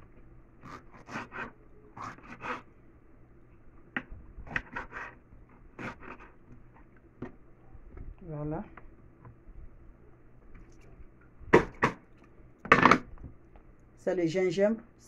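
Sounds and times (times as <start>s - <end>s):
knife slicing pepper on wooden board: 5.8s - 6.4s.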